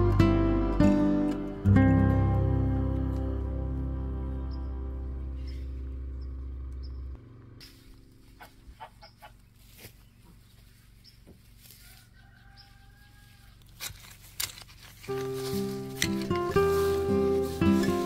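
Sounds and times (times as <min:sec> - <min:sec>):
chickens clucking: 0:05.3 - 0:13.7
tool digging in soil: 0:13.5 - 0:18.0.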